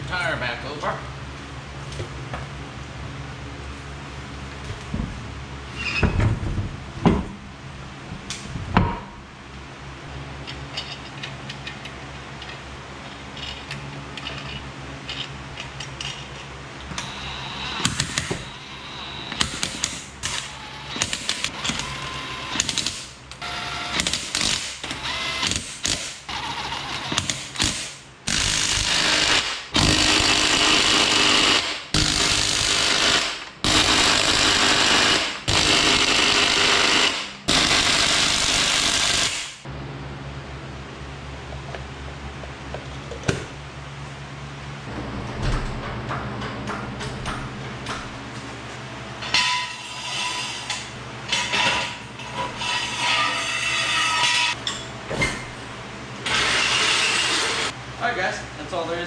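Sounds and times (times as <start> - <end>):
impact wrench hammering: 23.7 - 39.7.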